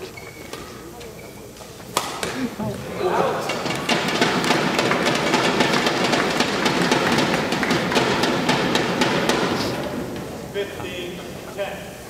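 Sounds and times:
crowd applauding: 0:02.9 - 0:12.0.

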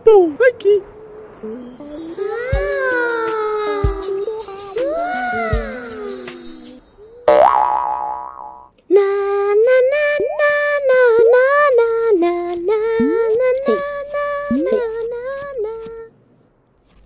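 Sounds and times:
high cartoon voice singing: 0:01.0 - 0:07.3, 0:08.9 - 0:16.1.

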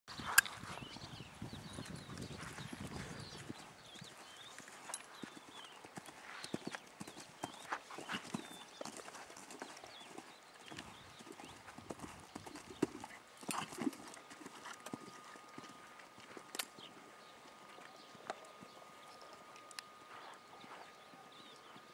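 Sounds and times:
horse hoofbeats on sand: 0:00.1 - 0:17.0.

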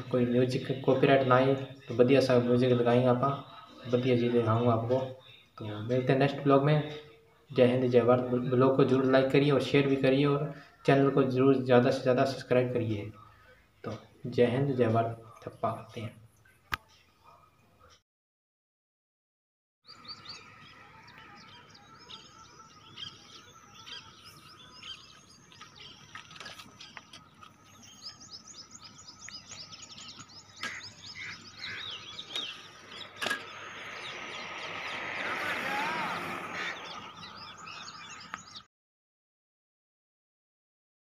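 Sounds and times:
small birds chirping: 0:19.8 - 0:38.7
broad swell of noise: 0:31.4 - 0:38.5.

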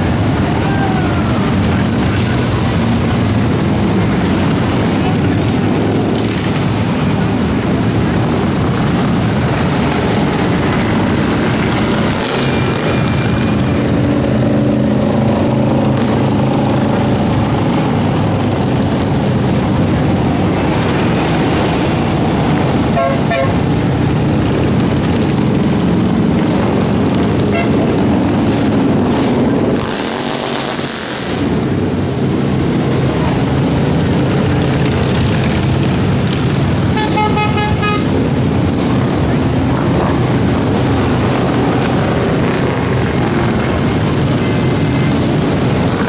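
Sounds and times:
motorcycles passing slowly: 0:00.0 - 0:46.0
beeping horn: 0:22.9 - 0:23.6, 0:27.5 - 0:27.9, 0:36.9 - 0:38.1
horn tooting: 0:22.9 - 0:23.7, 0:27.4 - 0:28.0, 0:36.9 - 0:38.2.

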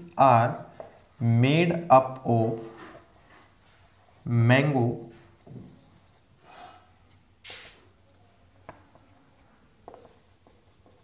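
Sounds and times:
marker writing on whiteboard: 0:00.4 - 0:01.2, 0:02.0 - 0:06.2, 0:08.6 - 0:11.0
short breaths: 0:06.4 - 0:07.8.

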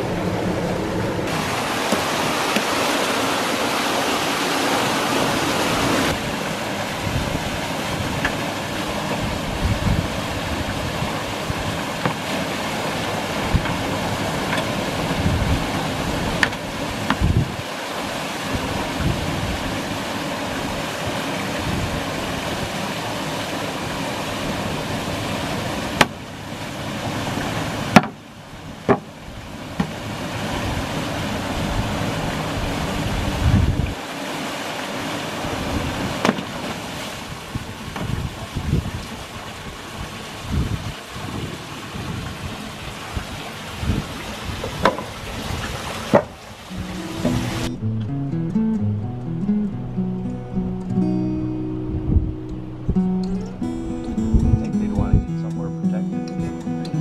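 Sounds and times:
water rushing into a pipe: 0:00.0 - 0:47.7
sharp knocks: 0:28.0 - 0:28.2.

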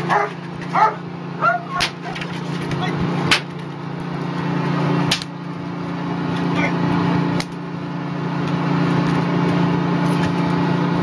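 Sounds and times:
low engine hum: 0:00.0 - 0:11.0
dog barking: 0:00.1 - 0:01.9
sharp cracks: 0:01.7 - 0:02.3, 0:05.0 - 0:05.4.

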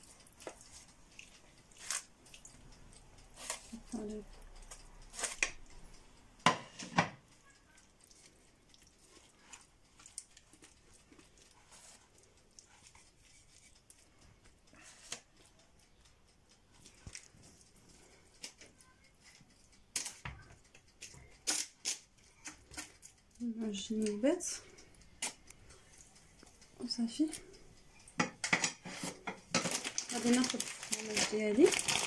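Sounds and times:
faint ticks and rustles: 0:00.0 - 0:32.0
sharp knocks on baking tray: 0:06.4 - 0:07.2
spatula scraping tray: 0:28.4 - 0:29.8.

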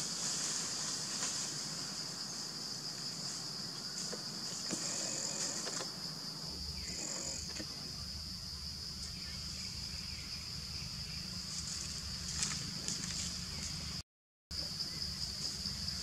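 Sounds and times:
high-pitched insect drone: 0:03.4 - 0:14.0.

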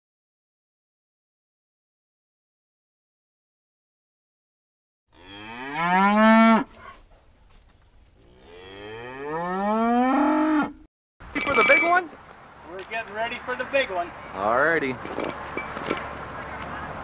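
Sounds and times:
cow mooing: 0:05.1 - 0:07.0, 0:08.2 - 0:10.9.

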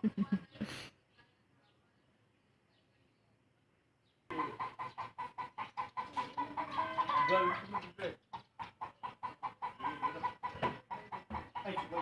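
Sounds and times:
chicken clucking: 0:04.3 - 0:12.0.

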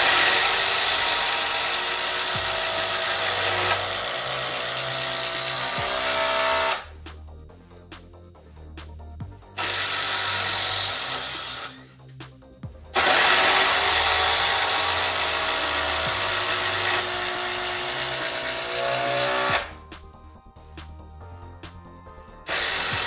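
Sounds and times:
impact driver hammering screws: 0:00.0 - 0:06.8, 0:13.0 - 0:19.7, 0:22.5 - 0:23.0
background music: 0:00.0 - 0:23.0.

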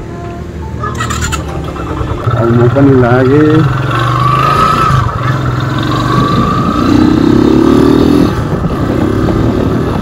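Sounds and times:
motorcycle engine running: 0:01.0 - 0:10.0
wind noise on microphone: 0:04.8 - 0:10.0.

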